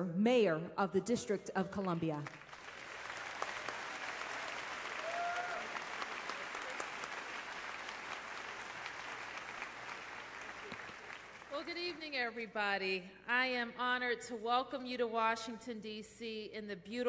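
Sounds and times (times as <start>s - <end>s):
audience applauding: 2.4s - 12.1s.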